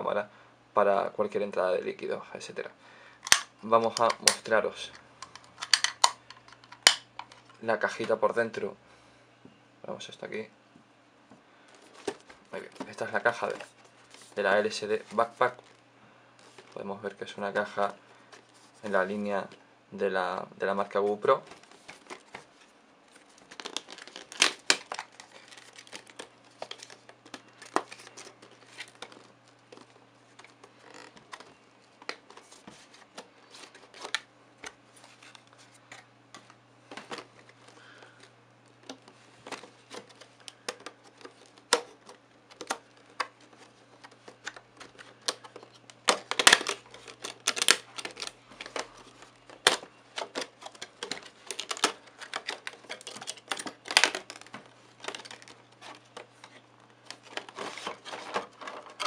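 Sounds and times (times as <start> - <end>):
plastic box crinkling: 11.7 - 15.8, 21.3 - 59.0.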